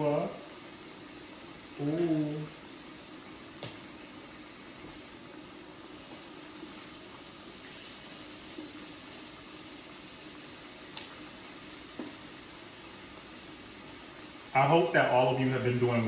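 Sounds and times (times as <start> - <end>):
broth simmering: 0.0 - 16.0
meat sizzling on grill plate: 0.0 - 16.0.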